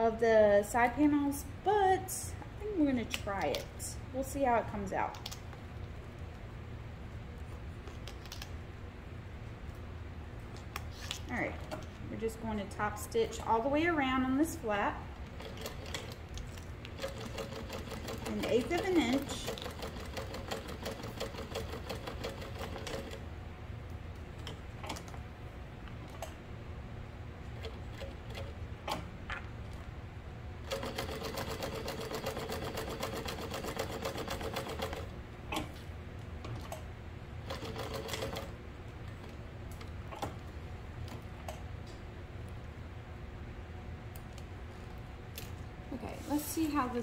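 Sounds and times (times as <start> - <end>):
sewing machine stitching: 17.0 - 23.2, 30.7 - 35.7.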